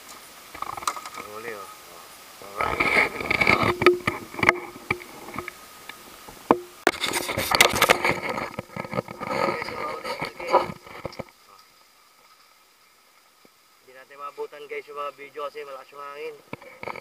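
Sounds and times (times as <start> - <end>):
knocks and scrapes on wooden boat: 2.6 - 5.5, 6.5 - 11.4.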